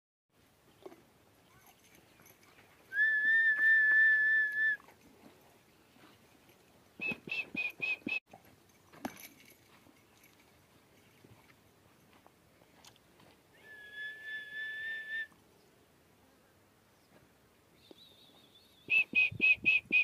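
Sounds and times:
person whistling: 2.9s - 4.8s, 7.0s - 8.2s, 13.6s - 15.3s, 18.9s - 20.0s.

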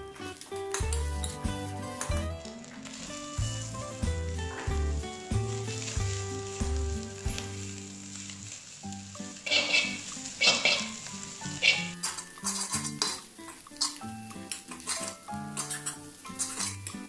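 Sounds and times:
oil sizzling: 0.0s - 17.0s
metal spatula scraping a wok: 9.4s - 16.9s.

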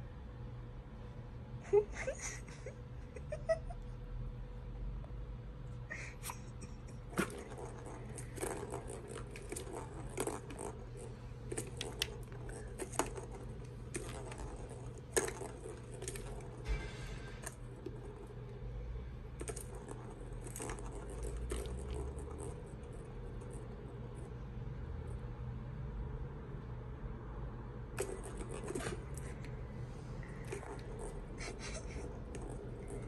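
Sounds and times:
plastic balls clattering in track toy: 7.2s - 16.7s, 28.0s - 29.4s.

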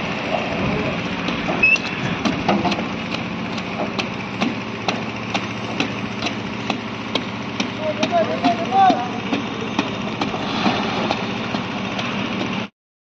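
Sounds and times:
engine running steadily: 0.0s - 12.7s
sharp regular clicks: 1.2s - 8.6s.

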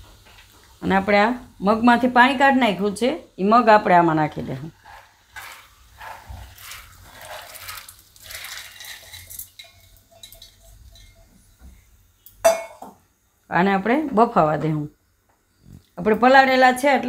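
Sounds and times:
beans splashing into boiling water: 4.3s - 11.2s.

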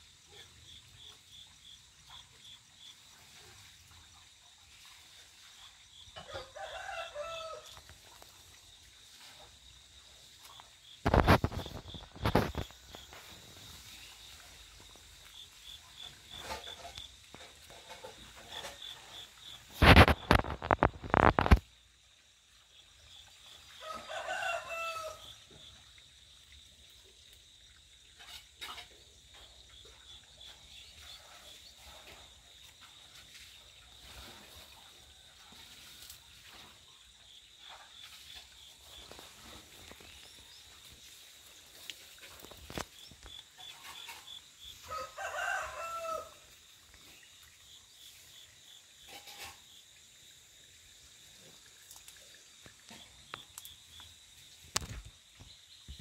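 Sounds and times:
high-pitched insect trill: 4.8s - 26.3s
rooster crowing: 6.2s - 7.8s, 23.8s - 25.4s, 44.8s - 46.5s.

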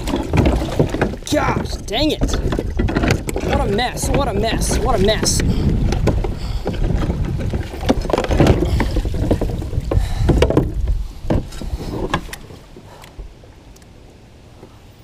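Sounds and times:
pedal drive knocking and clunking: 0.0s - 12.5s
wind on microphone: 0.0s - 13.4s
river water rumble: 0.0s - 15.0s.

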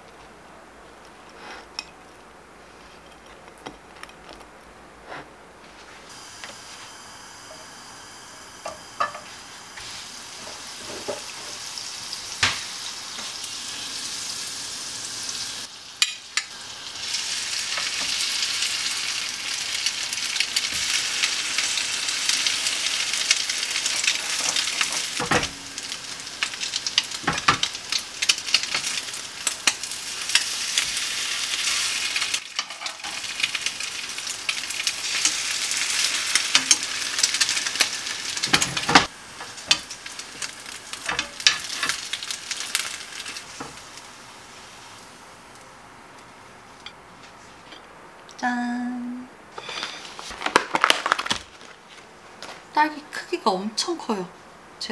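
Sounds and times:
bread sizzling in a frying pan: 5.7s - 46.9s.

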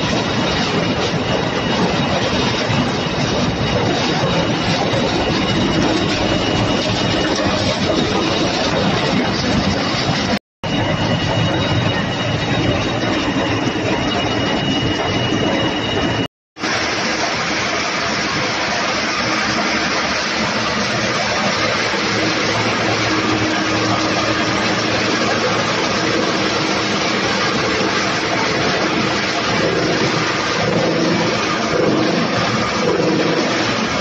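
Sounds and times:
rubber grinding machinery: 0.0s - 34.0s.

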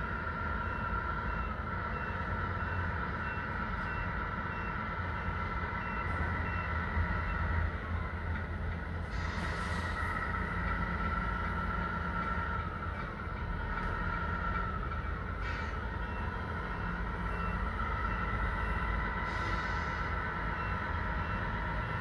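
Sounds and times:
reversing beeper: 0.0s - 7.7s, 13.7s - 22.0s.

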